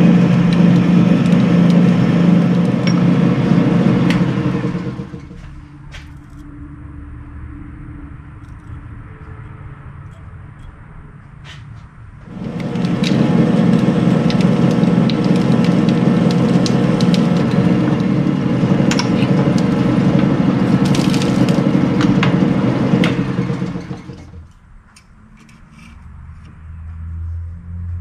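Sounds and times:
metal lathe humming: 0.0 - 5.6, 12.2 - 24.5
metal chips crackling: 12.3 - 25.8.

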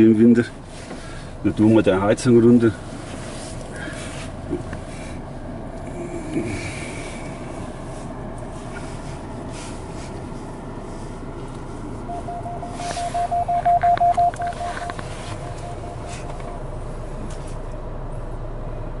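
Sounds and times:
car engine and tyres humming: 0.0 - 19.0
electronic warning beeps: 12.1 - 16.7.

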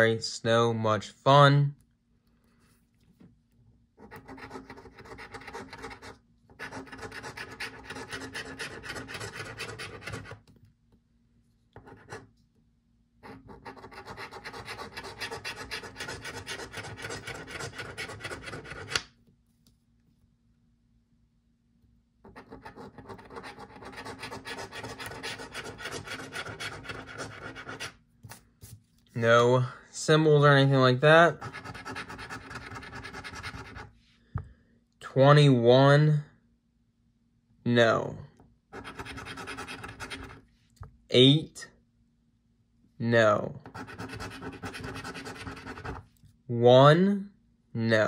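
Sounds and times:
coin scratching lottery ticket: 4.0 - 10.4, 13.2 - 19.0, 22.3 - 27.9, 31.4 - 33.9, 38.8 - 40.4, 43.7 - 46.0.

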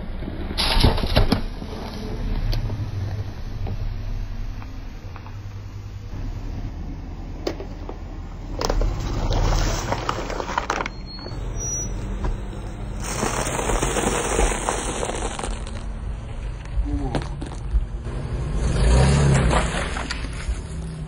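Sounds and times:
low engine rumble: 1.4 - 18.7
tyre crunching plastic cups: 8.5 - 11.0, 12.8 - 15.9.

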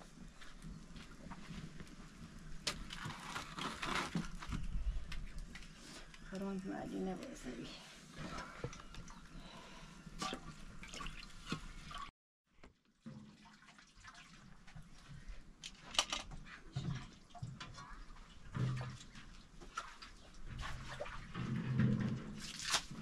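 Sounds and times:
water sloshing in a metal pot: 5.5 - 12.1, 12.8 - 23.0.

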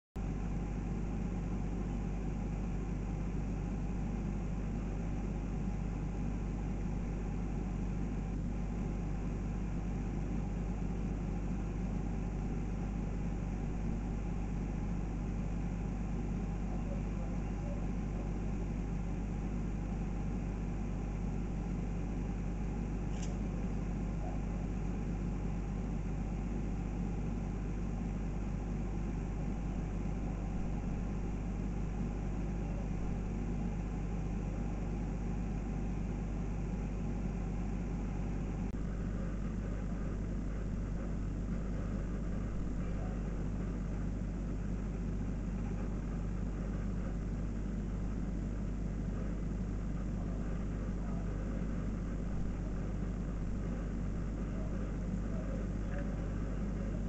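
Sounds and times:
low mechanical hum: 0.0 - 57.0
faint click: 23.1 - 23.4.

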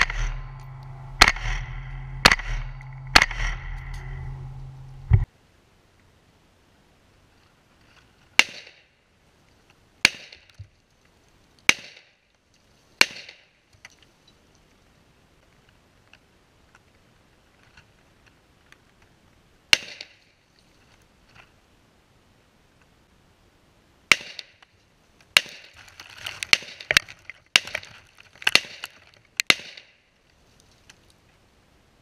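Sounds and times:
gunshots with echo: 0.0 - 4.1.

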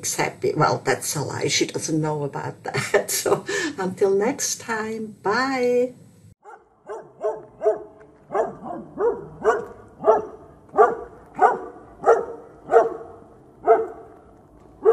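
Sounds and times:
dog barking: 6.4 - 14.2.

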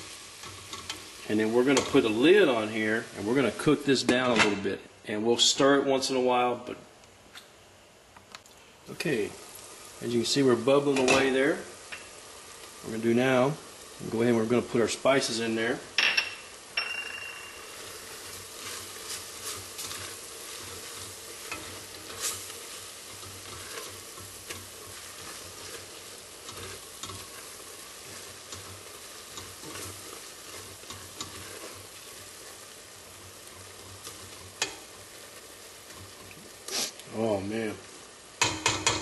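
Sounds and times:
vegetables sizzling in a pot: 0.0 - 39.0
spatula scraping a pot: 17.8 - 32.6.

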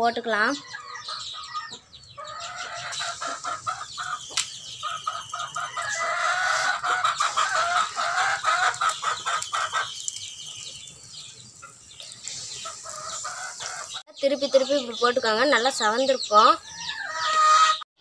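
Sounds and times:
chickens clucking: 0.0 - 17.9
batter frying in hot oil: 2.9 - 13.9.

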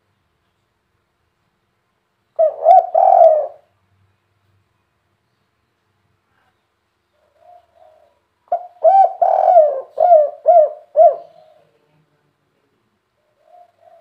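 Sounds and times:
dove cooing: 2.4 - 3.7, 7.2 - 11.8, 13.2 - 14.0.

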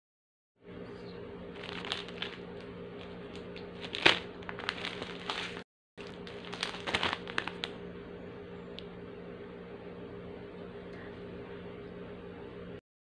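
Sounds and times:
plastic wrapper crinkling: 1.5 - 7.8.

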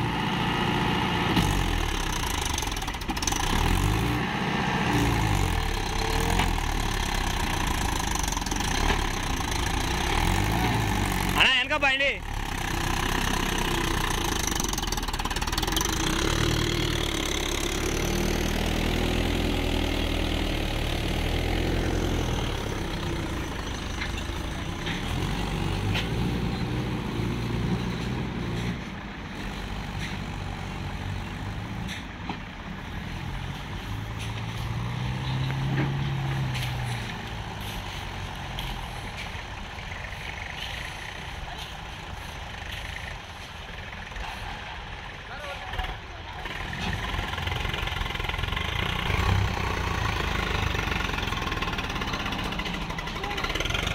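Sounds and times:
tractor diesel engine under load: 0.0 - 53.9.

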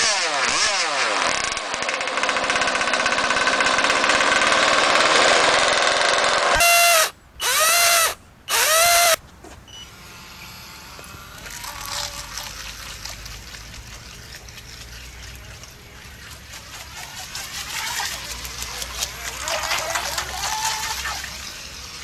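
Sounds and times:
model boat engine revving: 0.0 - 9.2, 10.0 - 22.0
faint outdoor background: 0.0 - 22.0.

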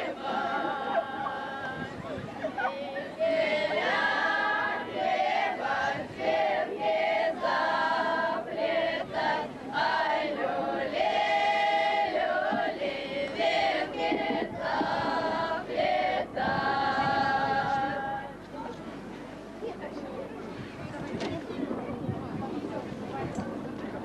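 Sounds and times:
women and children singing: 0.0 - 2.0, 2.6 - 18.4.

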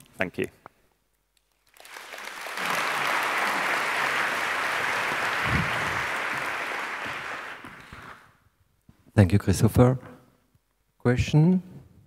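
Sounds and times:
audience applauding: 1.5 - 8.4.

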